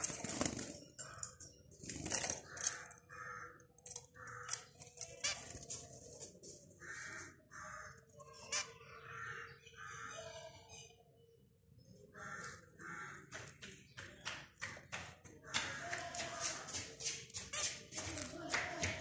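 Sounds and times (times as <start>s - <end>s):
wings fluttering: 0.0s - 2.8s.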